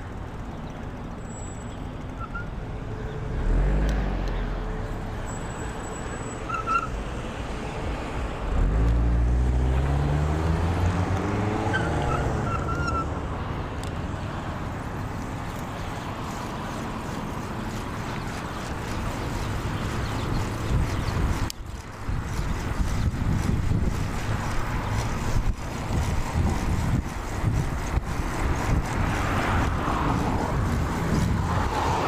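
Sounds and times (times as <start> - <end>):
wind and road noise from bicycle: 0.0 - 32.0
car passing: 7.0 - 32.0.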